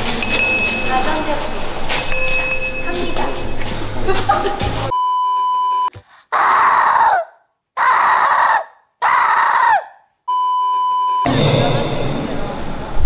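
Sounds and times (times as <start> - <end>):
short screams: 6.3 - 10.0.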